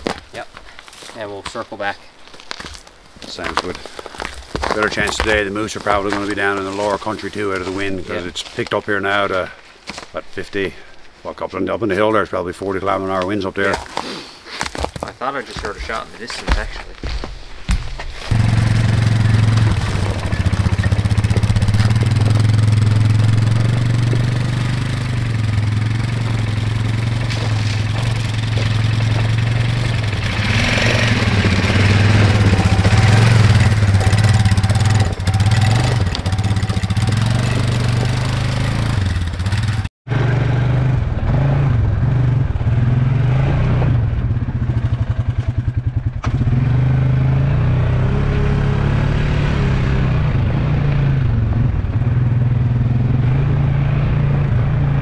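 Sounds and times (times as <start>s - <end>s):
quad engine running: 18.3s - 55.0s.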